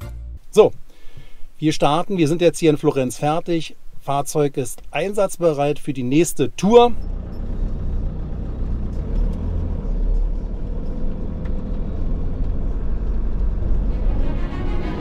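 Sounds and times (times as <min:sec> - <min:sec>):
vehicle engine and road rumble: 0:06.6 - 0:15.0.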